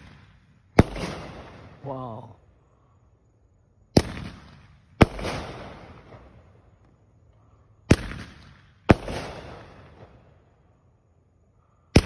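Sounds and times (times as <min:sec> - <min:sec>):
fireworks bangs: 0:00.0 - 0:02.3, 0:03.9 - 0:06.5, 0:07.8 - 0:10.4.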